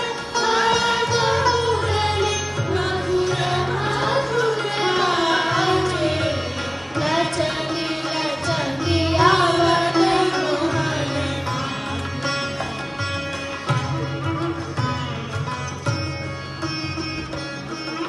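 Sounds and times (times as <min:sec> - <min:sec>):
instrumental accompaniment: 0:00.0 - 0:18.0
female choir singing: 0:02.7 - 0:06.4.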